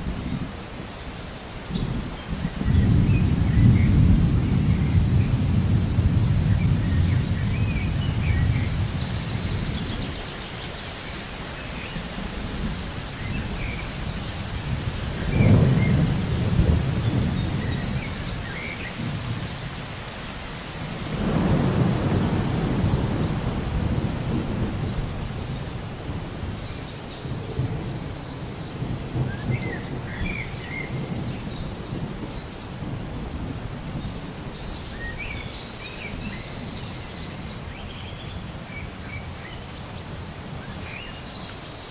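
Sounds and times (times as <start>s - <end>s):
rain on foliage: 0.0s - 41.9s
distant thunder rumble: 1.7s - 10.7s, 11.5s - 39.4s.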